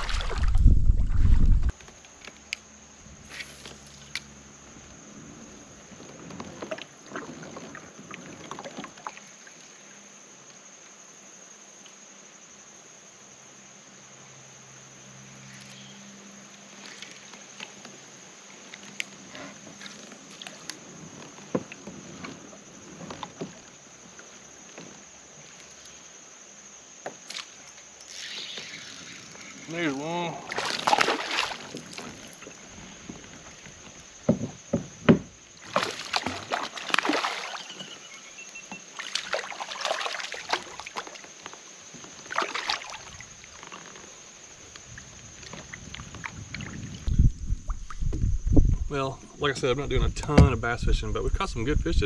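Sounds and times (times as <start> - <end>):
fish splashing into water: 0.0 - 1.1, 30.5 - 32.3, 35.6 - 38.0, 38.9 - 41.2, 42.3 - 43.2
small water sounds: 0.0 - 52.0
fishing gear knocking on kayak hull: 34.2 - 35.4.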